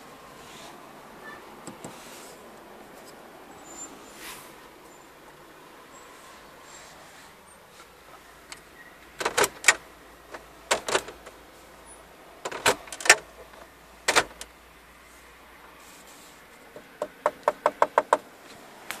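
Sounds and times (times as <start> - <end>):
fingers knocking on plastic trim: 17.0 - 18.2.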